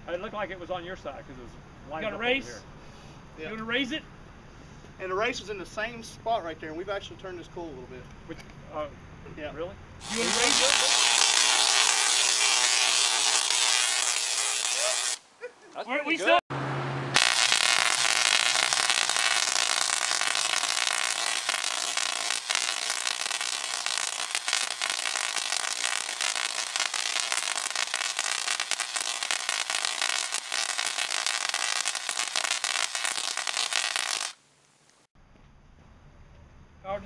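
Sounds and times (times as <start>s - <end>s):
tesla coil sparks crackling: 10.0s - 15.2s, 17.2s - 35.1s.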